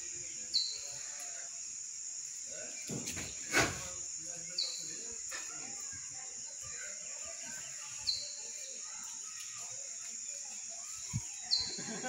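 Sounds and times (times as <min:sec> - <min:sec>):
insects chorus: 0:00.0 - 0:12.0
bird chirp: 0:00.2 - 0:01.2, 0:04.3 - 0:05.6, 0:06.6 - 0:12.0.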